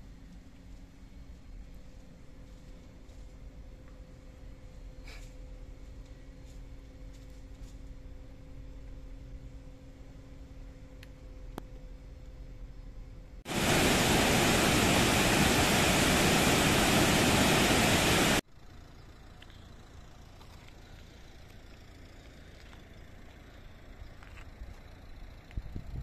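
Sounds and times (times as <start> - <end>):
faint outdoor background noise: 0.0 - 26.0
waterfall roaring: 13.5 - 18.4.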